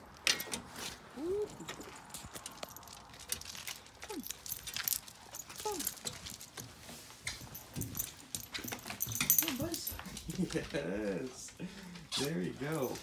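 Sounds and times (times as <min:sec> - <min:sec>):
dog whining: 0:01.2 - 0:02.0, 0:04.0 - 0:04.5, 0:05.3 - 0:06.1
collar tags jingling: 0:01.6 - 0:11.4, 0:12.4 - 0:13.0.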